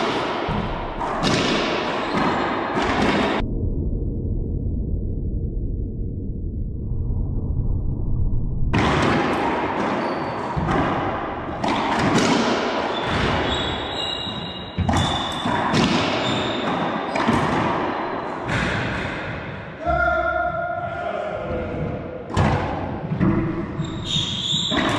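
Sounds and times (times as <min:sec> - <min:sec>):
ball smacking off racquets and walls: 0:00.0 - 0:03.4, 0:08.8 - 0:13.9, 0:14.7 - 0:19.4
shoes squeaking on hardwood floor: 0:12.9 - 0:15.4.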